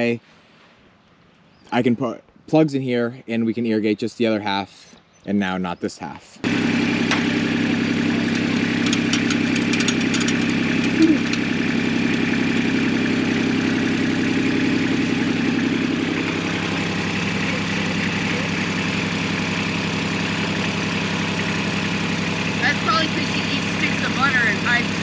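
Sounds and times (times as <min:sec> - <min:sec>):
engine idling: 0:06.4 - 0:25.0.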